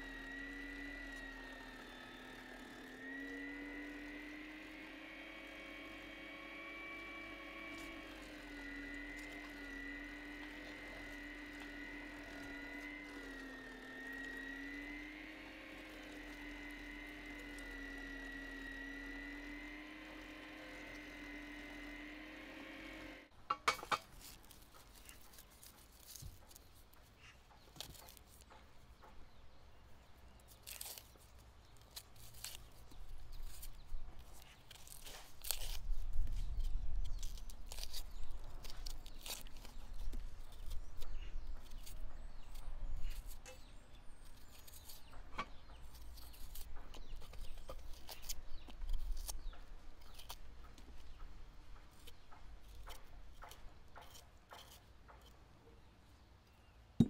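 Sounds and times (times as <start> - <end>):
knife cutting onion skins: 30.3 - 55.4.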